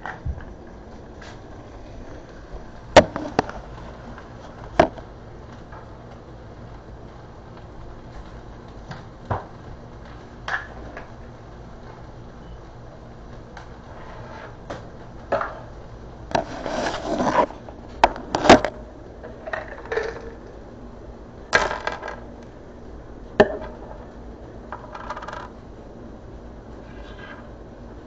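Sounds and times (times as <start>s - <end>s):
objects knocking and scraping: 2.0s - 5.0s, 16.3s - 20.5s, 24.7s - 25.6s.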